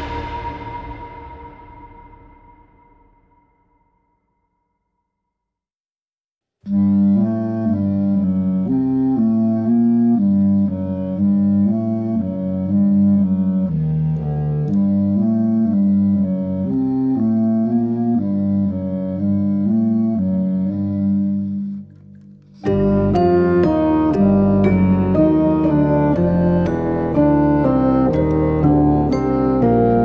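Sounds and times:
instrumental background music: 6.7s - 30.0s.

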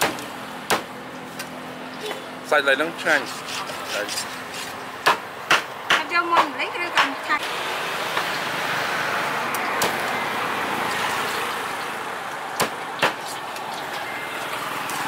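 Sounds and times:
passing traffic: 0.0s - 15.0s
sharp knocks: 5.0s - 7.2s.

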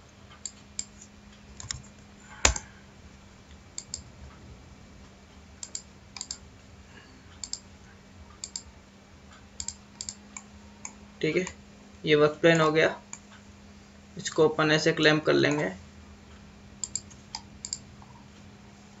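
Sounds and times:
faint steady hum: 0.0s - 19.0s
computer mouse clicks: 0.4s - 2.7s, 3.8s - 4.1s, 5.6s - 6.4s, 7.4s - 7.7s, 8.4s - 8.7s, 9.6s - 11.6s, 16.8s - 18.4s
key presses: 1.6s - 2.7s.

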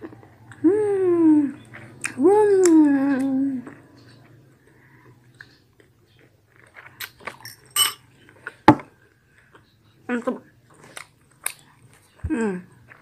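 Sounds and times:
quiet chewing: 0.0s - 0.7s, 1.5s - 7.4s, 8.0s - 13.0s
spoon clinking glass bowl: 7.4s - 8.1s.

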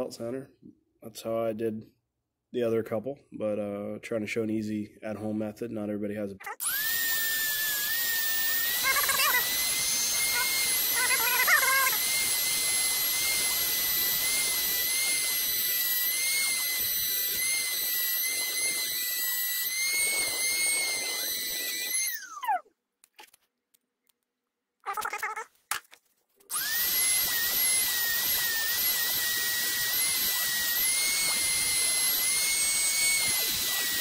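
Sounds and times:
rotary tool whining: 6.4s - 23.4s, 26.5s - 34.0s.

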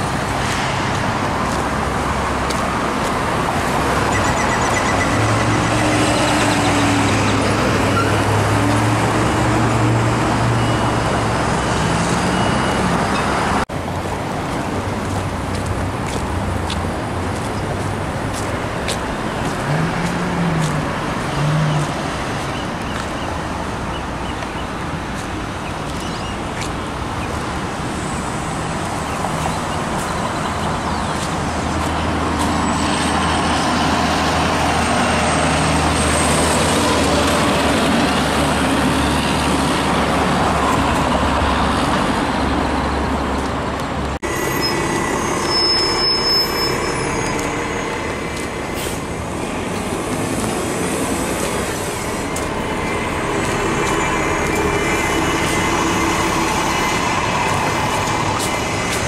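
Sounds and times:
vehicle road noise: 0.0s - 59.0s
low engine rumble: 46.8s - 59.0s.

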